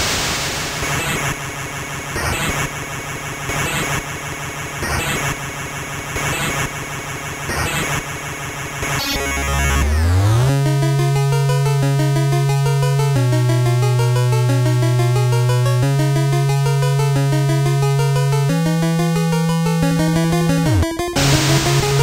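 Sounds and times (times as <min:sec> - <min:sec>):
electronic music: 0:09.0 - 0:22.0
rising synth sweep: 0:09.0 - 0:22.0.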